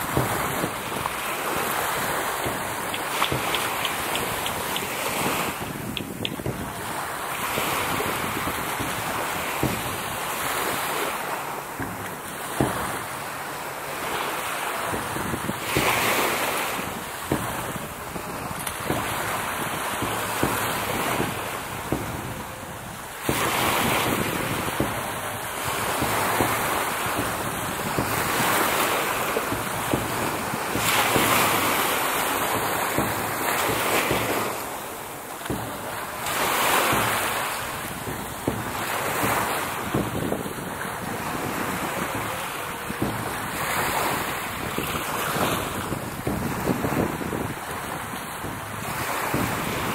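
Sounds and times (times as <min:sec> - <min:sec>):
small sea waves lapping: 0:00.0 - 0:49.9
wind buffeting microphone: 0:00.0 - 0:49.9
sharp knocks: 0:02.4 - 0:06.6.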